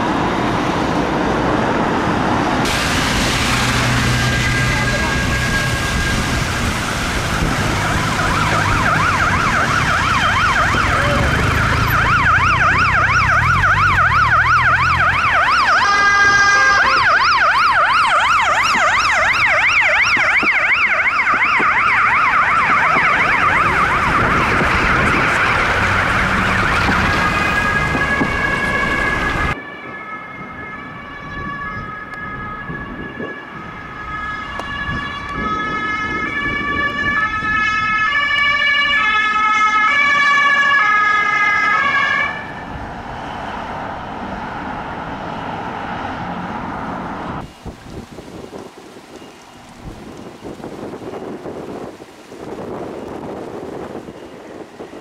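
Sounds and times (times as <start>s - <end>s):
bus engine rumbling: 0.0s - 19.2s, 22.0s - 29.6s, 41.3s - 55.0s
ambulance siren wailing: 3.7s - 47.5s
two-tone siren: 4.1s - 7.0s, 7.8s - 46.5s.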